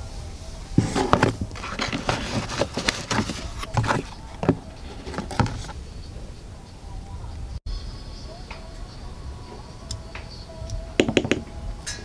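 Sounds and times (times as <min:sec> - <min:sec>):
cardboard boxes rustling and knocking: 0:00.8 - 0:05.8.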